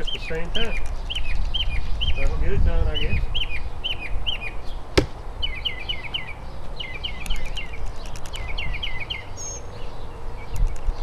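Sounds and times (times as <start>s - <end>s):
birds chirping: 0.0s - 11.0s
knife striking wooden target: 5.0s - 5.2s.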